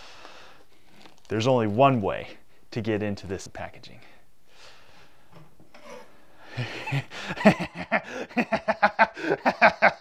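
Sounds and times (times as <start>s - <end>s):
man laughing: 6.6s - 10.0s.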